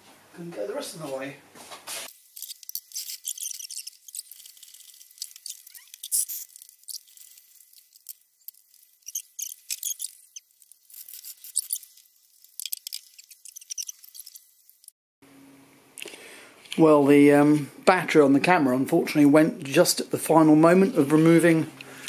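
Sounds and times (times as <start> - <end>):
high-pitched ratchet clicks and squeaks: 2.1 - 14.9.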